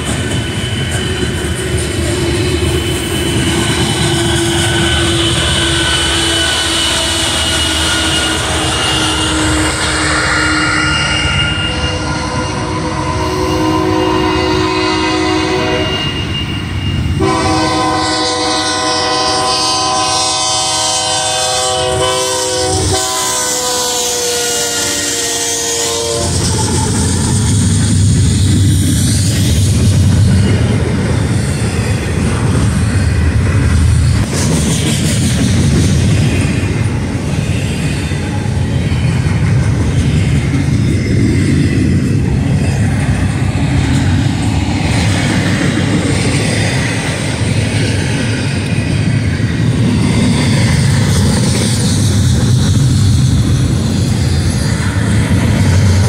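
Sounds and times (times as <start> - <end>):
freight cars rumbling and clattering: 0.0 - 13.2, 26.2 - 56.0
locomotive air horn chord: 4.4 - 16.2, 17.2 - 26.8.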